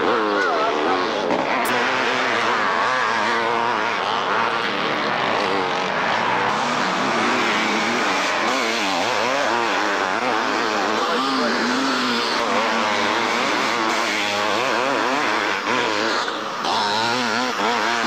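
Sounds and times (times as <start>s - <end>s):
motocross bikes revving: 0.0s - 18.0s.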